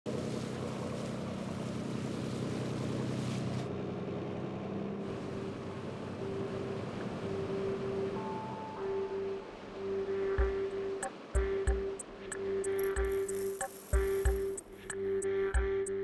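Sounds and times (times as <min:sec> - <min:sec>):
water rushing along hull: 0:00.1 - 0:15.0
motorboat engine running: 0:00.1 - 0:15.9
sustained tone: 0:05.3 - 0:16.0.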